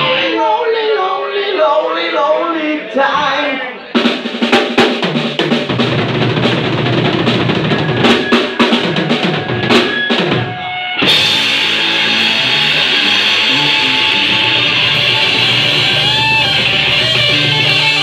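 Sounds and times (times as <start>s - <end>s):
rock band playing: 0.0s - 0.9s, 3.4s - 18.0s
drum kit playing: 4.0s - 18.0s.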